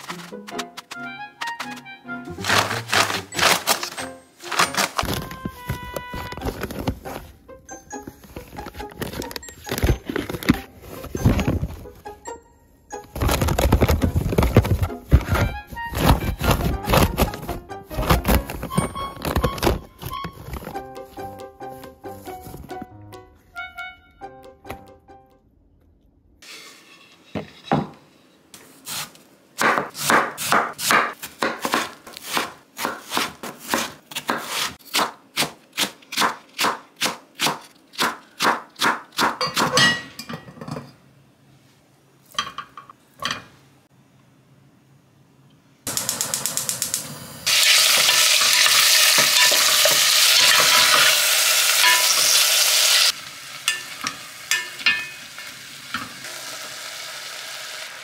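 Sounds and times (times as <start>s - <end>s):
knife chopping on wooden board: 29.6s - 39.8s
meat sizzling in hot pot: 45.9s - 58.0s.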